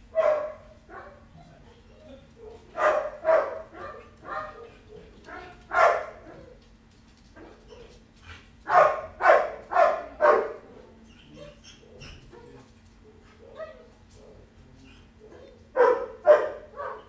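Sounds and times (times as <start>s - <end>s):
dog barking: 0.1s - 1.8s, 2.4s - 6.6s, 8.7s - 10.7s, 11.4s - 14.5s, 15.2s - 17.0s.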